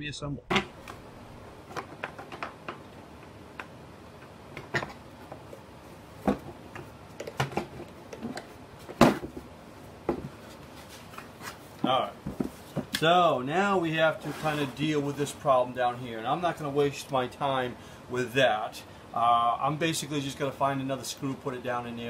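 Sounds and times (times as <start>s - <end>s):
hard plastic parts knocking: 1.7s - 3.7s.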